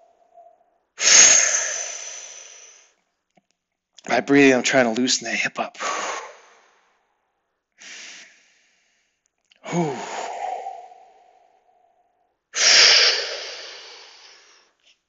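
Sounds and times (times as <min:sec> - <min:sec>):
man breathing deeply: 0:05.8 - 0:07.0, 0:07.8 - 0:11.9, 0:12.6 - 0:14.8.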